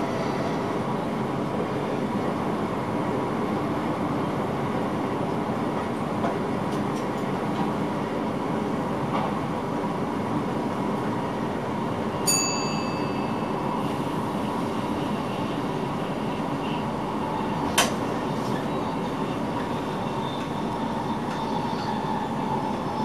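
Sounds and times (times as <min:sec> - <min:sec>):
train wheels rumbling on rails: 0:00.0 - 0:23.0
bell-like ding: 0:12.3 - 0:13.5.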